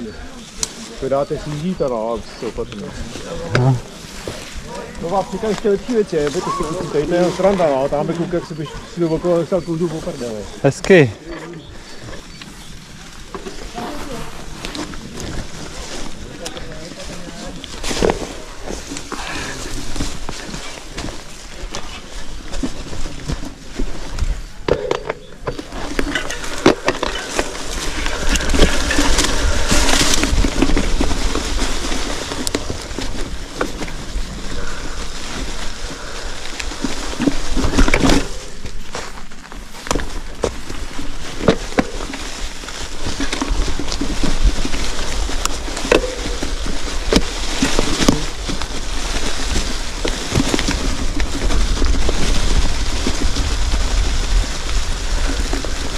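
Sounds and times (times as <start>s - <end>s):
wind rumble on microphone: 40.2s - 55.9s.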